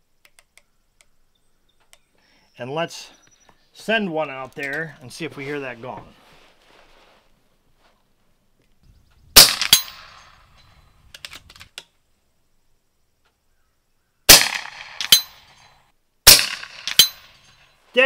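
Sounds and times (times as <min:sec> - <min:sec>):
air rifle firing: 0:09.4 - 0:10.3, 0:14.3 - 0:15.5, 0:16.3 - 0:17.4
sharp crack: 0:09.4 - 0:10.5, 0:14.3 - 0:17.5.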